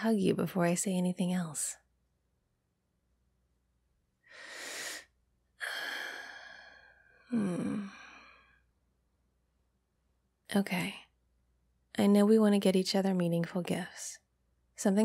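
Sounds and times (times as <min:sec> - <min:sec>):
woman breathing: 0:04.2 - 0:08.7
woman sighing: 0:05.6 - 0:08.4.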